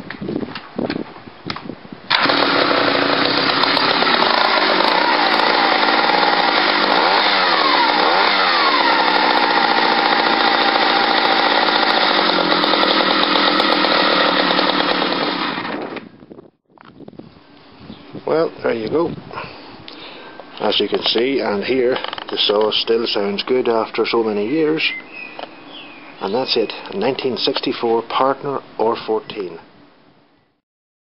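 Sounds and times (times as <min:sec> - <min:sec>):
chainsaw running: 0:02.1 - 0:16.2.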